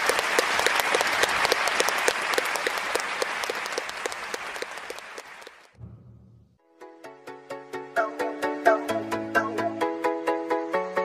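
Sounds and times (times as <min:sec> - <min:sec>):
crowd applauding: 0:00.0 - 0:05.8
rhythmic clapping: 0:00.0 - 0:05.8.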